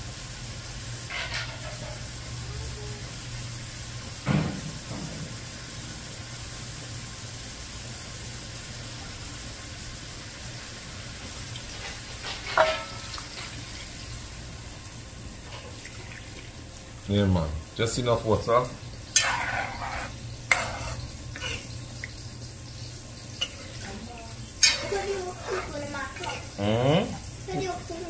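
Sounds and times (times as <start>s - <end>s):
low hiss and hum: 0.0s - 28.0s
metal cookware clanking: 11.8s - 13.5s, 19.1s - 21.9s, 23.4s - 26.6s.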